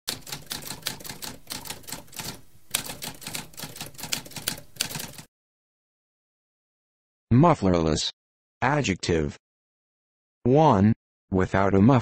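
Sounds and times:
typewriter keys clacking: 0.1s - 5.3s.

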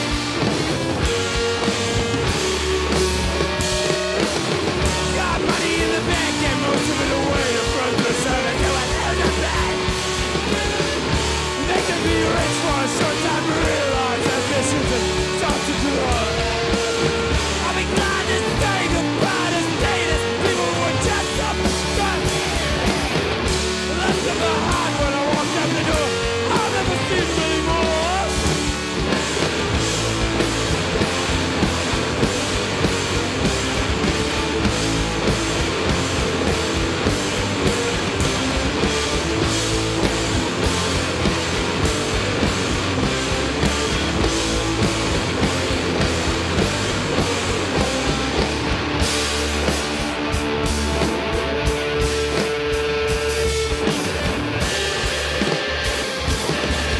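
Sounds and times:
live rock band playing: 0.0s - 56.9s
wavering lead guitar line: 0.0s - 56.9s.

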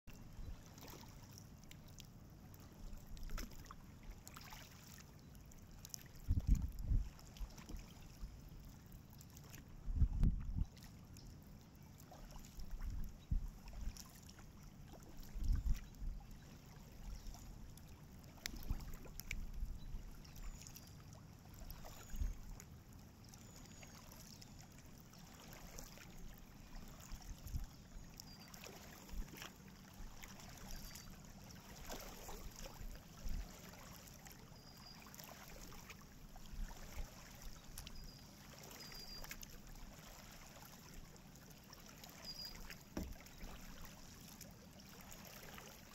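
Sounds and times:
paddle splashes: 0.1s - 45.9s
water dripping off paddle: 16.9s - 23.1s, 42.0s - 45.8s.

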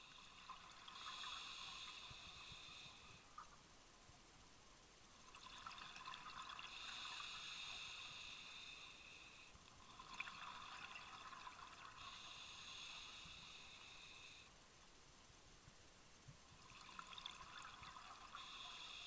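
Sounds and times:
regulator inhale hiss: 0.0s - 3.4s, 6.7s - 9.6s, 11.9s - 14.6s, 18.1s - 19.0s.

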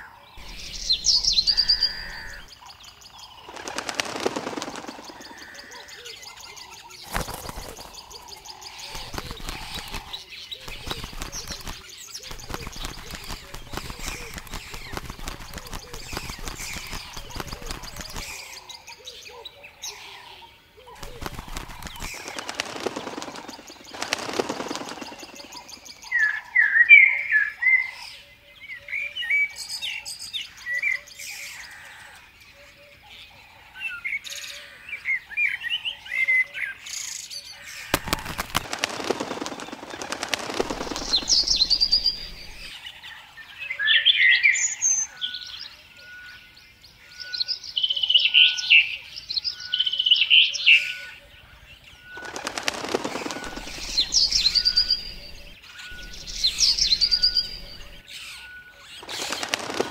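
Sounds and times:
songbirds chirping: 0.0s - 59.9s
bird wings flapping: 0.4s - 18.6s, 20.9s - 26.6s, 37.6s - 42.9s, 52.1s - 58.0s, 58.9s - 59.9s
faint repeated bird note: 0.4s - 18.6s, 21.0s - 26.2s, 37.9s - 42.8s, 51.9s - 59.9s.

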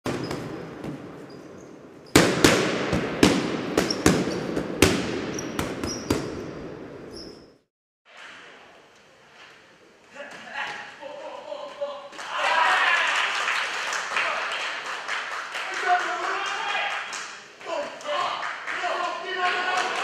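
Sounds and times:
faint hall ambience: 0.1s - 20.0s
sharp echoing hits: 2.1s - 7.1s.

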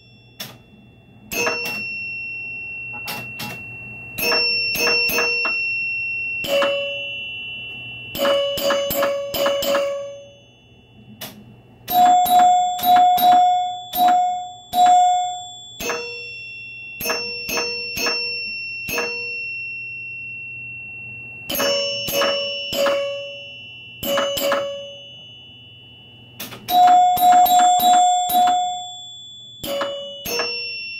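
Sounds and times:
pinball chime bars ringing: 0.0s - 30.9s.

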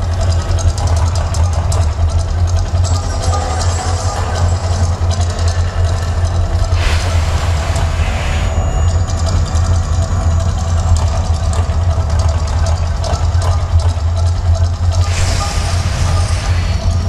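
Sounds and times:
deep eruption rumble: 5.0s - 13.1s, 14.8s - 17.0s
rushing swells of noise: 5.8s - 10.8s, 15.0s - 17.0s.

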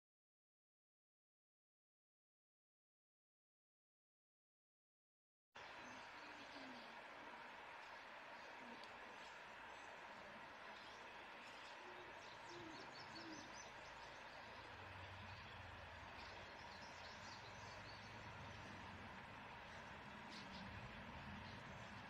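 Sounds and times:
steady hiss: 5.6s - 22.0s.

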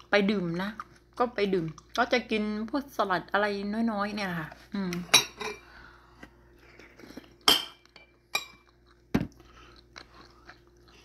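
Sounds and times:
metal spoon clinking on ceramic bowls: 7.5s - 8.7s.

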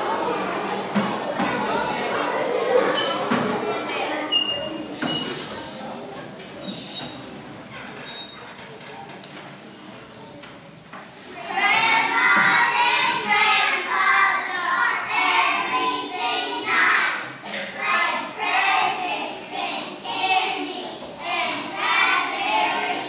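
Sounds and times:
children singing in unison: 11.4s - 23.0s.

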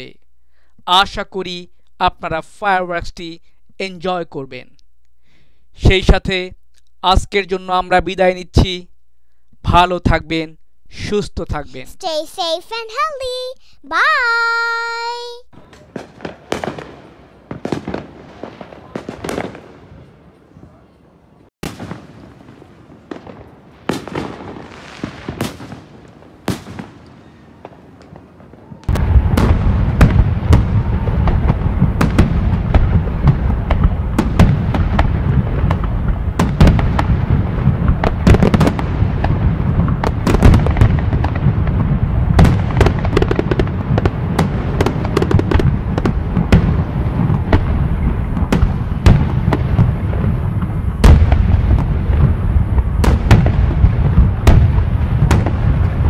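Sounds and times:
fireworks bangs and crackling: 13.2s - 21.0s, 21.6s - 56.0s.

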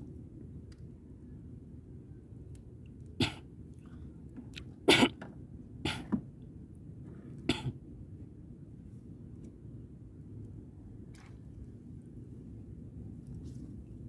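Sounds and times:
man coughing: 3.2s - 3.4s, 4.9s - 5.1s.

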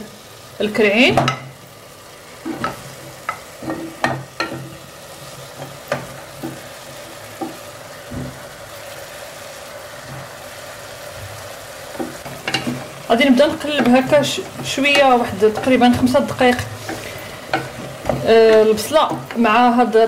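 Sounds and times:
onion and garlic sizzling in oil: 0.0s - 20.0s
meat pieces knocking in pot: 5.5s - 8.5s, 11.1s - 19.7s.

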